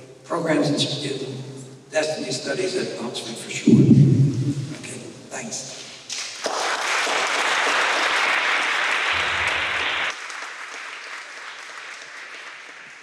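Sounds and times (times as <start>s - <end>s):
audience applauding: 6.2s - 13.0s.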